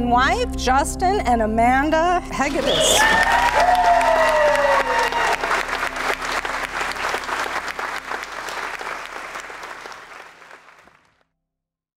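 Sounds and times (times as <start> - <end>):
crowd applauding: 2.4 - 11.2.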